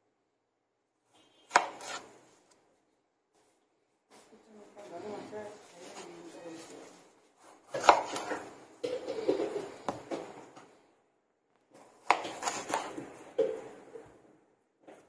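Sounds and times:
knife cutting tomatoes: 1.5s - 2.2s, 5.6s - 10.4s, 11.7s - 13.9s.

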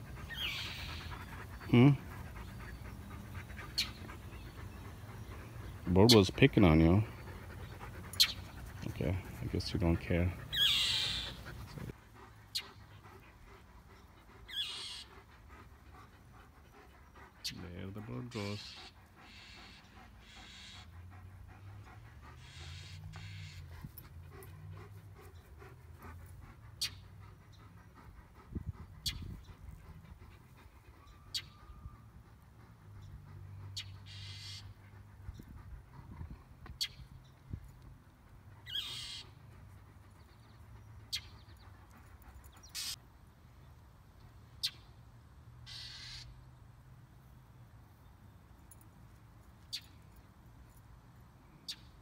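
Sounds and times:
dog panting: 0.0s - 43.0s
bird harsh scolding calls: 0.3s - 1.9s, 10.5s - 11.5s, 14.5s - 15.1s, 33.8s - 34.7s, 38.7s - 39.3s, 45.7s - 46.3s.

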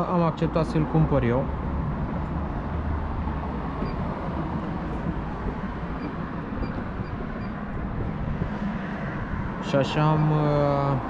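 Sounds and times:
low vehicle rumble: 0.0s - 11.0s
keypad beeps: 3.8s - 4.2s, 5.9s - 7.6s.

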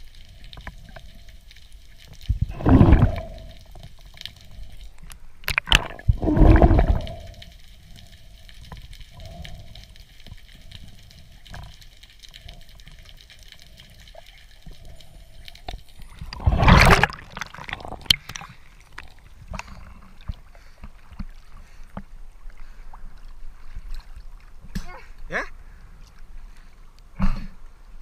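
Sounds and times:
muffled underwater rumble: 2.1s - 5.0s, 5.7s - 28.0s
rush of water: 2.3s - 3.6s, 5.4s - 7.4s, 15.9s - 21.8s.

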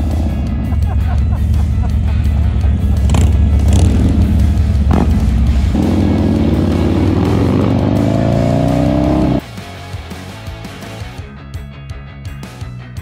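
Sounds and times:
motorcycle engine accelerating: 0.0s - 9.4s.

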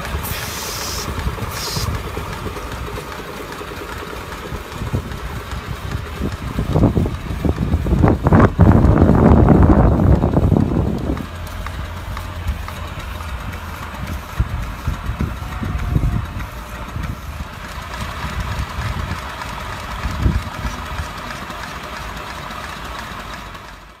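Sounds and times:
steady hiss: 0.1s - 2.0s
wind buffeting microphone: 4.4s - 21.2s.

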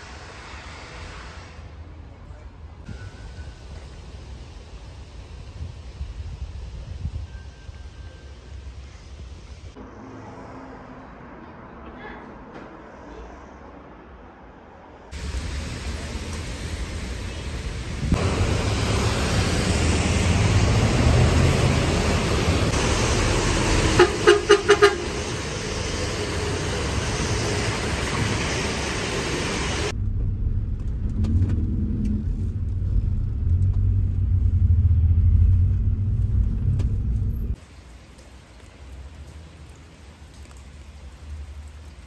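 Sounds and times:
road traffic on wet street: 0.0s - 42.0s
car horn tooting: 23.9s - 25.2s
vehicle engine rumble from inside: 29.7s - 37.6s.

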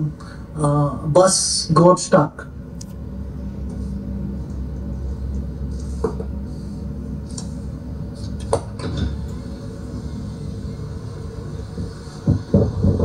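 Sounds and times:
vehicle cabin rumble: 2.6s - 13.0s.

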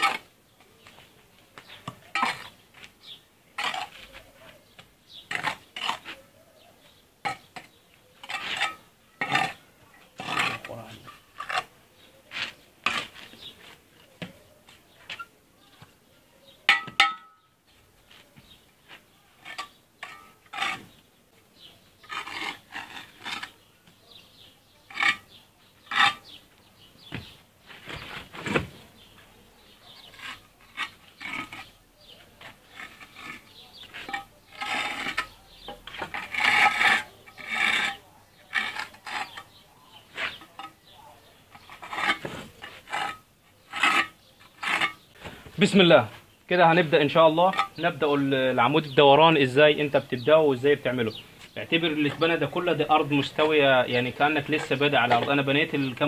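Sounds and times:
trowel scraping mortar: 0.0s - 0.3s, 1.7s - 2.6s, 3.6s - 6.3s, 7.2s - 13.8s, 19.4s - 21.0s, 22.0s - 23.6s, 24.8s - 26.4s, 29.8s - 45.1s, 51.6s - 56.0s
trowel tapping bricks: 16.7s - 17.4s.

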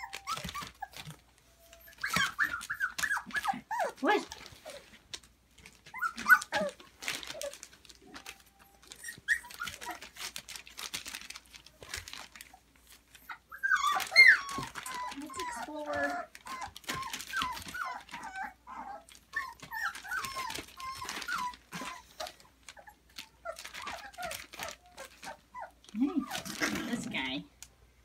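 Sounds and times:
puppies yipping and whining: 0.0s - 5.0s, 5.6s - 27.3s.

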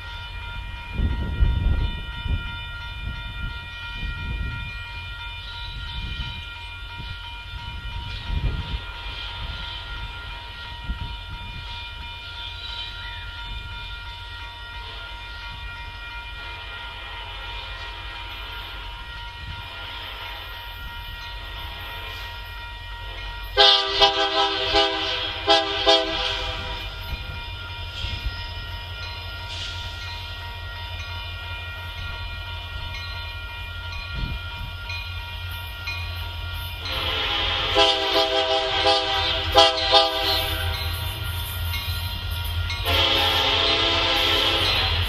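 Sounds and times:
locomotive air horn blasts: 23.6s - 27.0s, 36.9s - 41.0s, 42.8s - 45.0s.

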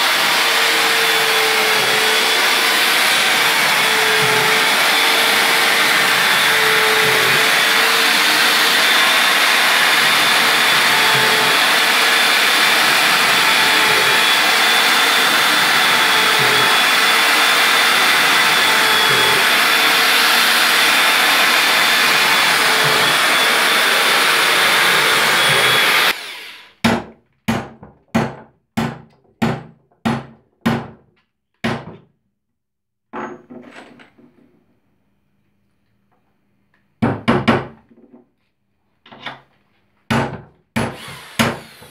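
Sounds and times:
electric power tool running: 0.0s - 26.7s, 41.0s - 41.9s.

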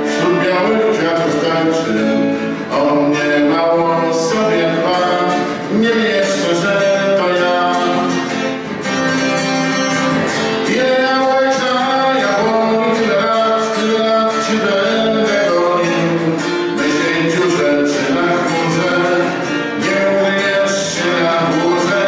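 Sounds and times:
man singing: 0.0s - 8.6s, 10.3s - 22.0s
acoustic guitar strumming: 0.0s - 22.0s.

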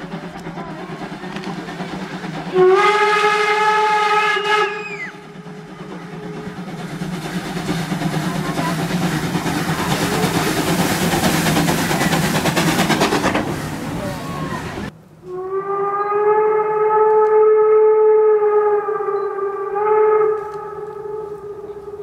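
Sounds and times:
steam locomotive exhaust beats: 0.0s - 22.0s
steam whistle blast: 2.5s - 5.4s, 15.2s - 22.0s.

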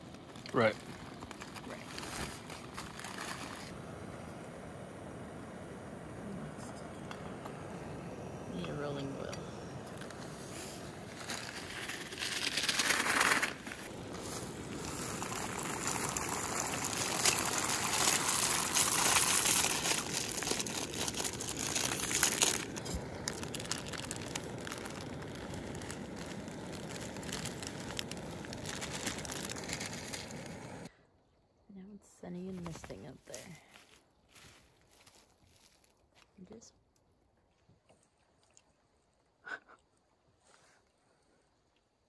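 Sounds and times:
plastic packaging crinkling: 0.0s - 3.8s, 9.9s - 30.9s
steady rushing hiss: 0.0s - 30.9s
pasta poured into pot: 10.0s - 30.9s.

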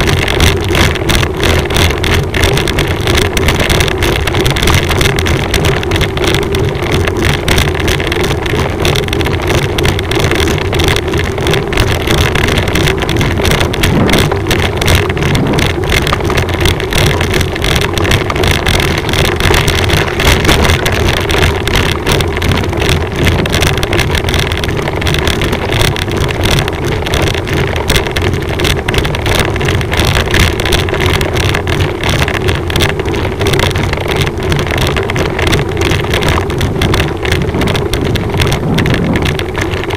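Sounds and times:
vehicle engine running: 0.0s - 39.9s
wind buffeting microphone: 0.0s - 39.9s.

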